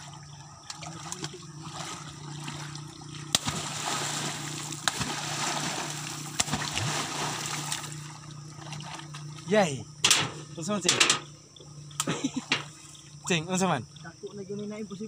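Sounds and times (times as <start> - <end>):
steady low hum: 0.0 - 15.0
sharp water slaps: 0.7 - 9.4, 10.0 - 11.3, 12.0 - 12.8
people splashing in water: 0.7 - 10.2.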